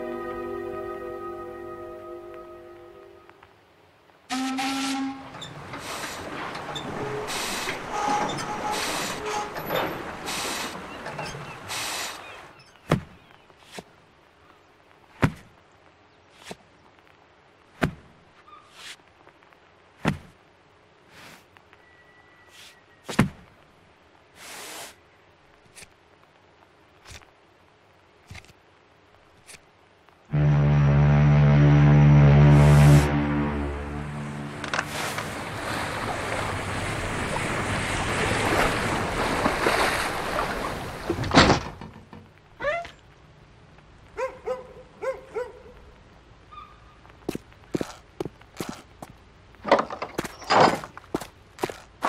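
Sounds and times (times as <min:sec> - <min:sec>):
wind: 0:00.0 - 0:52.0
waves washing: 0:04.7 - 0:12.6, 0:31.6 - 0:41.4
scraping hisses: 0:05.8 - 0:06.3, 0:07.2 - 0:09.4, 0:10.2 - 0:10.8, 0:11.7 - 0:12.3, 0:24.4 - 0:25.0
loud sudden sound: 0:30.3 - 0:34.9.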